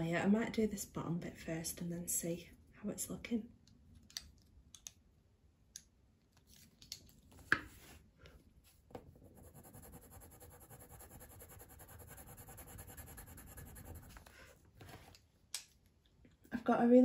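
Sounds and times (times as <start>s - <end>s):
pencil shading on paper: 9.2s - 14.3s.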